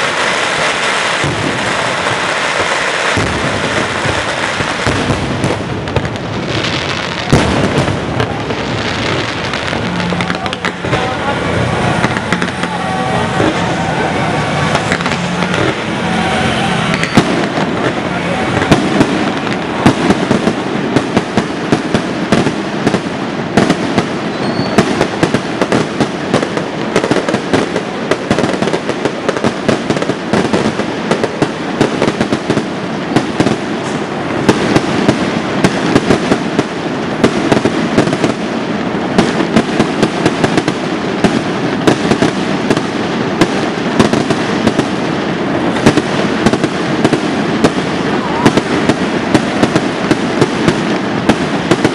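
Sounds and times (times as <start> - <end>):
firecrackers crackling: 0.0 - 51.9
firework bangs: 0.0 - 51.9.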